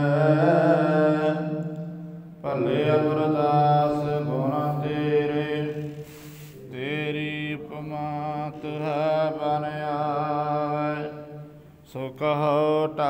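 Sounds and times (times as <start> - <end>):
steady drone: 0.0 - 6.4
man chanting: 0.0 - 13.0.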